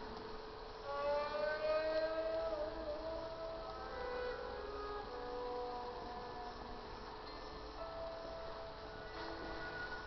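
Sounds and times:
ambient music with held tones: 0.0s - 10.0s.

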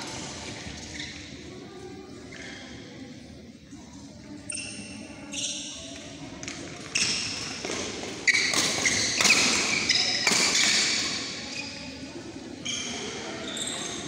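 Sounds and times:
shoe squeaks on court: 0.8s - 1.4s, 4.4s - 6.0s, 6.9s - 12.0s, 12.6s - 14.0s
rackets striking shuttlecock: 6.4s - 11.2s.

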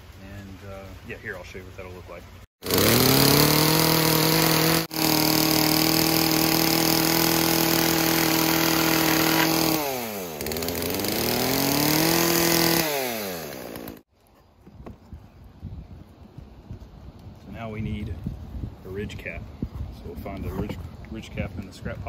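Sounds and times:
chainsaw cutting wood: 2.6s - 14.1s.

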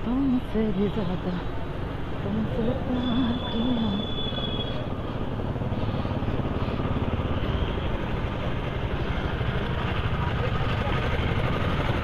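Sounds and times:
motorcycle engines: 0.0s - 12.0s
street traffic: 0.0s - 12.0s.

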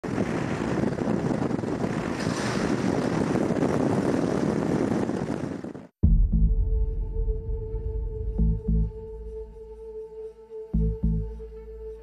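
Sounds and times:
wind buffeting microphone: 0.0s - 6.0s.

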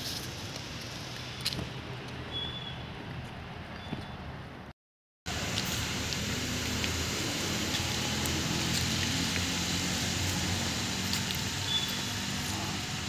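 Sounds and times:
even hiss: 5.3s - 13.0s.

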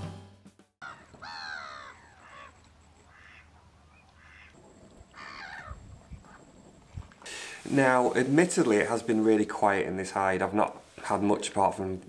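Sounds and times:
mallards quacking: 0.9s - 5.8s.

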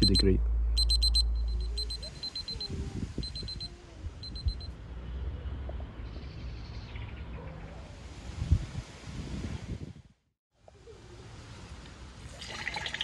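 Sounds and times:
thermometer alarm beeping: 0.0s - 4.7s
wind in leaves: 0.0s - 13.0s.

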